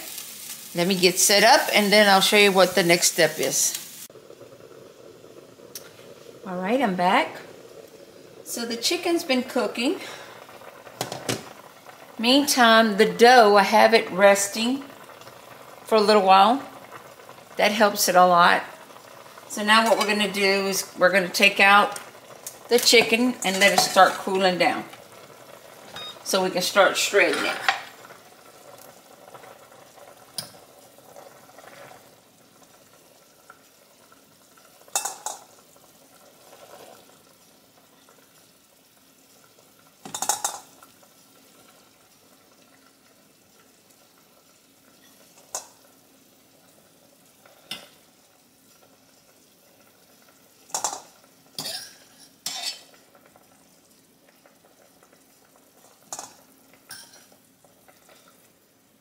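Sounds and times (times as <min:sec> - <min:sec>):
metal fork clinking on steel pot: 0:56.9 - 0:57.2.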